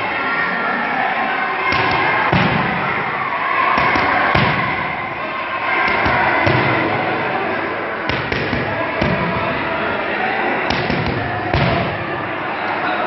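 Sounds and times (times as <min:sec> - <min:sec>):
boxing gloves striking mitts: 0:01.7 - 0:03.0, 0:03.8 - 0:05.0, 0:05.8 - 0:06.9, 0:08.1 - 0:09.6, 0:10.7 - 0:12.1.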